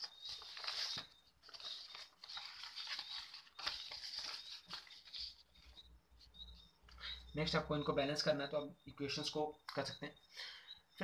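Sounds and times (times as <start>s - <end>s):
paper rustling: 0.0s - 7.0s.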